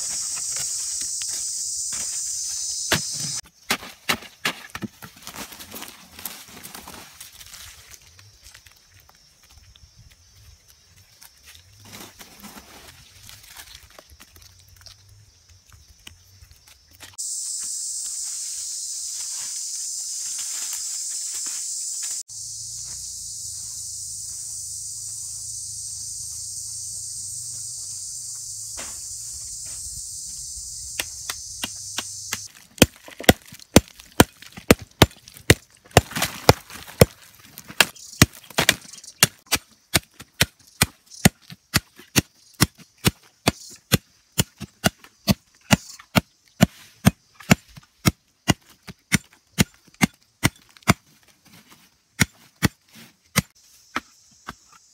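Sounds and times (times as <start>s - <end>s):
high-pitched insect chorus: 0.0s - 3.6s, 6.9s - 32.6s, 35.7s - 39.5s
machete chopping: 2.8s - 4.9s, 31.0s - 51.1s, 52.2s - 54.6s.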